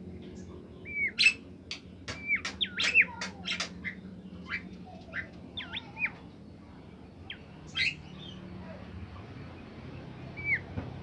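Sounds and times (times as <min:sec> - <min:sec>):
songbird whistling: 0:00.8 - 0:01.4, 0:02.1 - 0:04.6, 0:07.3 - 0:08.4, 0:10.4 - 0:10.7.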